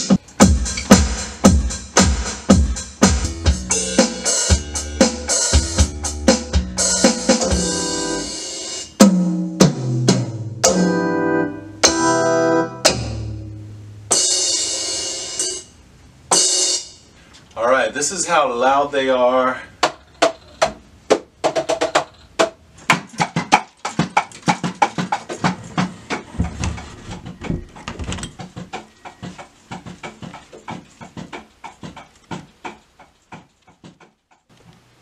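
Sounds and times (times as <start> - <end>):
electronic drum hits: 0.0 - 5.7, 12.8 - 13.5
low bass tones: 10.2 - 14.2.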